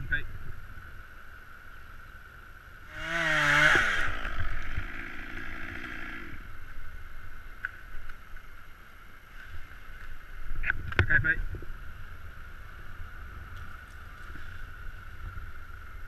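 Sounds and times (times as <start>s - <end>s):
chainsaw revving: 2.9s - 6.5s.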